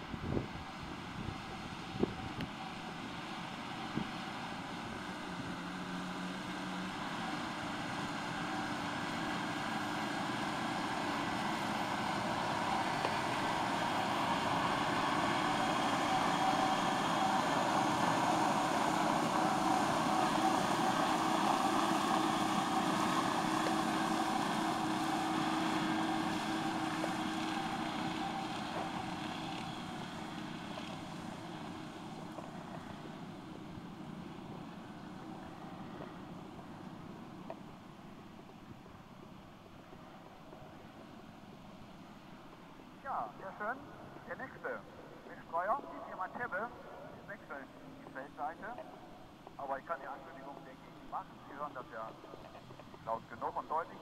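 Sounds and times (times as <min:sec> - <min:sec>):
spreader beaters humming: 0:00.0 - 0:38.1
tractor engine: 0:00.0 - 0:39.6.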